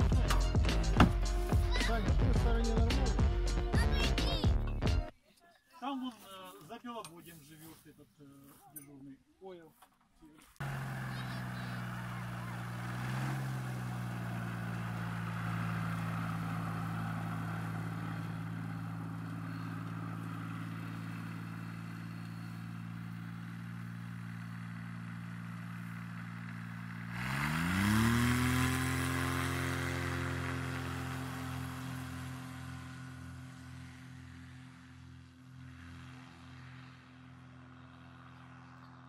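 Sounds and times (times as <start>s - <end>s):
engine and propeller running: 10.6s - 39.0s.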